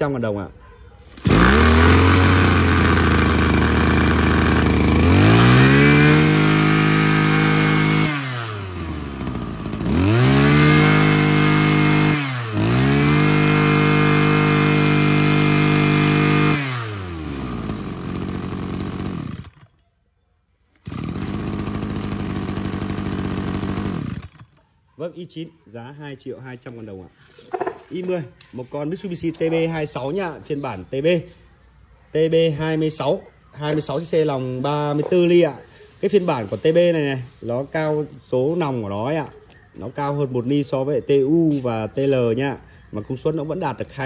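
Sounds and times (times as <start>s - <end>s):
brush cutter engine revving: 1.0s - 19.8s, 20.7s - 24.6s.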